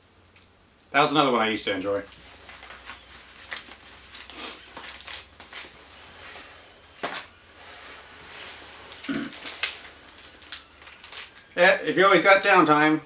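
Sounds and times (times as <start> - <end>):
packaging rustling and crinkling: 2.1 - 12.0.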